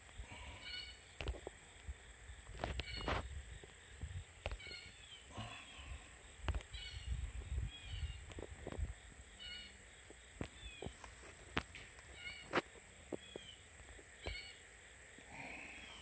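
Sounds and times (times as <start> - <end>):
high insect drone: 0.0 - 16.0
bird calling slurred notes: 0.2 - 1.2, 4.4 - 8.4, 9.3 - 9.8.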